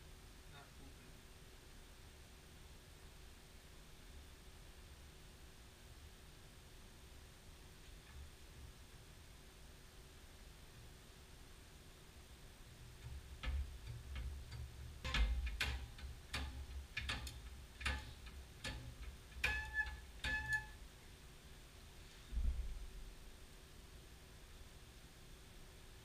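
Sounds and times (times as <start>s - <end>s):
metal tube clicking and knocking: 12.8s - 20.8s.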